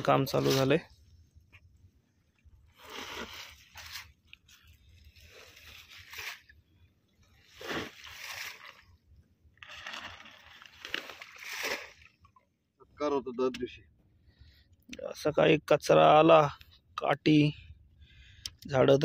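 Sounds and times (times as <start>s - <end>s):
net splashing into water: 7.5s - 8.9s, 9.6s - 12.4s.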